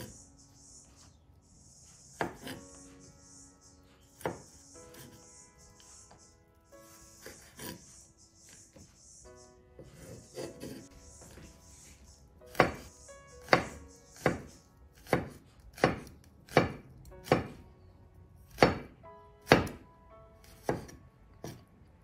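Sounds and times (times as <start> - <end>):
knife slicing on wooden board: 2.2 - 2.7, 4.2 - 5.2, 6.9 - 7.9, 9.8 - 11.6, 12.5 - 17.6.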